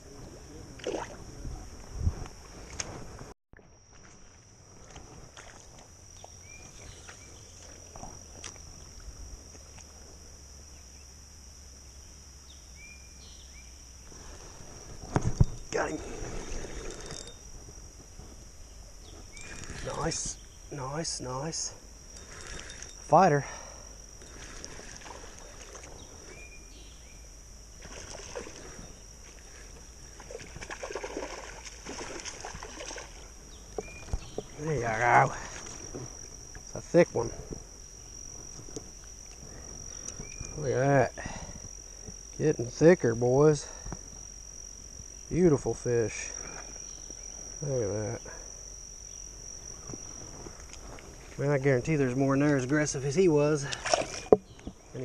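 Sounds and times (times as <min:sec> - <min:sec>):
insects droning high-pitched: 0:00.0 - 0:55.0
fish splashing and thrashing in water: 0:24.2 - 0:26.0, 0:27.8 - 0:28.7, 0:30.2 - 0:34.2, 0:53.7 - 0:54.5.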